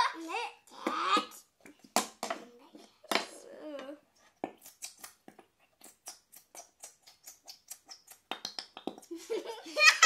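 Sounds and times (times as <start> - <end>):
child laughing: 9.1 - 10.0.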